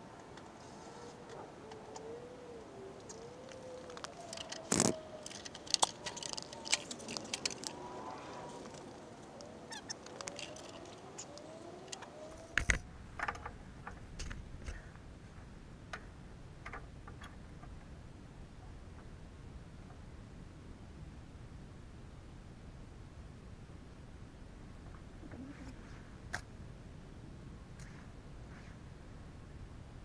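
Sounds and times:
faint wavering squeaky tones: 0.6 - 12.6.

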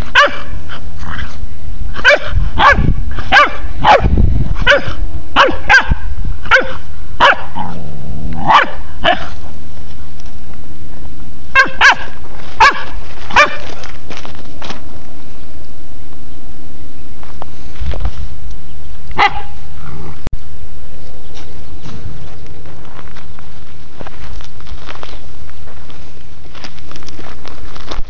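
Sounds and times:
puppy barking in high yaps: 0.1 - 0.5, 2.0 - 7.6, 8.4 - 9.3, 11.6 - 13.7, 19.2 - 19.5.

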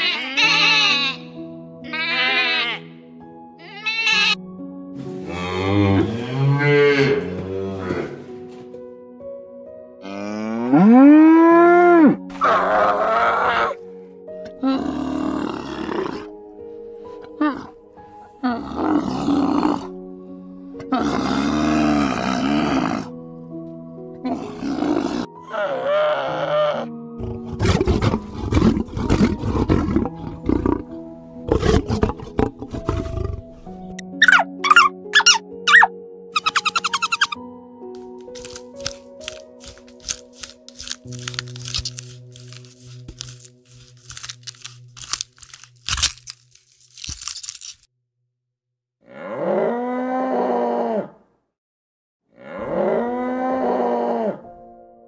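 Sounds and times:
soft background music: 0.0 - 47.7, 52.4 - 55.0
cow mooing: 5.2 - 8.3, 10.0 - 13.6, 49.0 - 51.1, 52.4 - 54.4
lion roaring grunts: 27.2 - 33.6
quick high chirps: 34.2 - 37.4.

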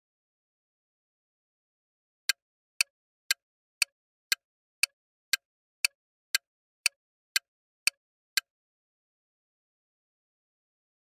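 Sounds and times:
clock ticks: 2.3 - 8.5.

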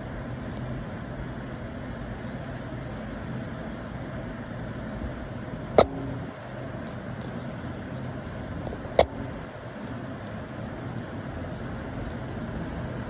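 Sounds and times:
distant urban traffic hum: 0.0 - 13.0
sharp knocks with low ring: 5.8 - 6.2.

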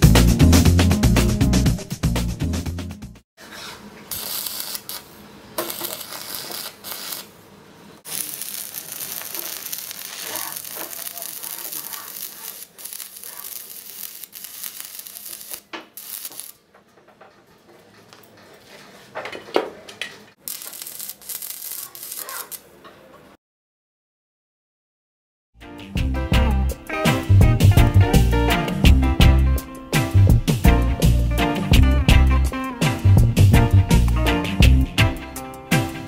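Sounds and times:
welding arc crackling: 4.1 - 7.4, 8.0 - 16.6, 20.4 - 22.7.

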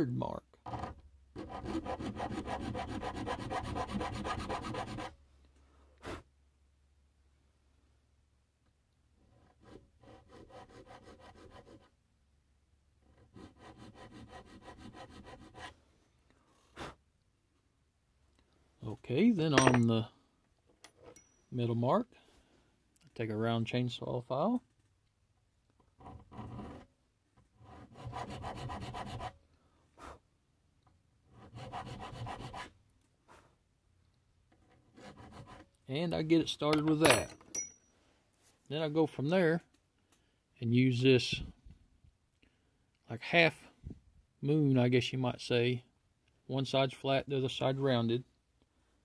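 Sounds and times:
file rasping on brass: 0.7 - 5.2, 9.2 - 11.9, 13.0 - 15.8, 26.0 - 26.9, 27.6 - 29.4, 31.3 - 32.7, 34.6 - 35.7.

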